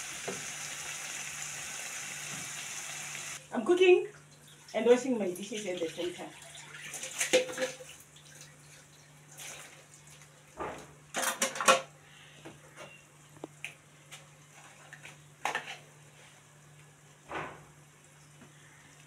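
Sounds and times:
dishes clattering in metal sink: 6.8s - 7.9s, 10.6s - 11.9s.

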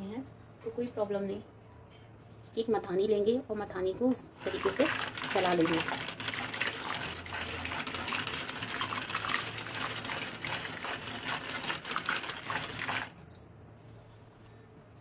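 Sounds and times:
wooden churner clattering in bowl: 4.4s - 13.1s.

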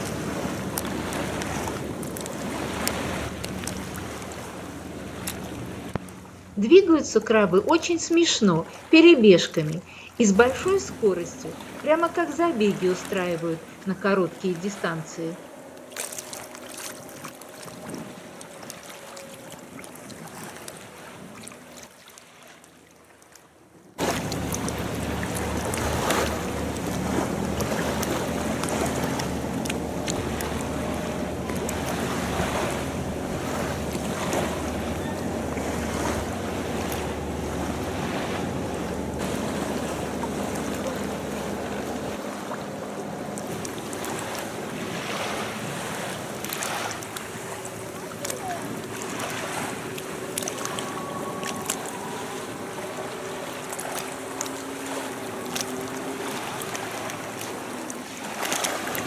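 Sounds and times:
sea surf: 0.0s - 59.0s
wind buffeting microphone: 24.0s - 46.4s.

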